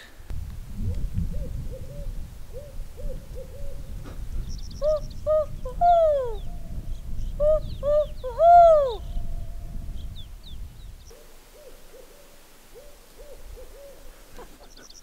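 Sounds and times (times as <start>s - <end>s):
distant owl hoots: 0.9s - 4.2s, 4.8s - 9.6s, 11.1s - 14.7s
person imitating owl call: 4.8s - 6.6s, 7.4s - 9.3s.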